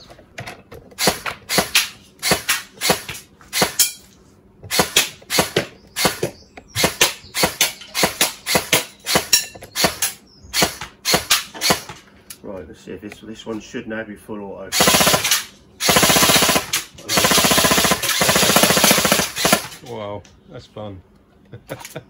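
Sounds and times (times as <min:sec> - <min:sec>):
airsoft rifle shots: 0:01.0 - 0:04.0, 0:04.7 - 0:12.0, 0:14.7 - 0:19.8.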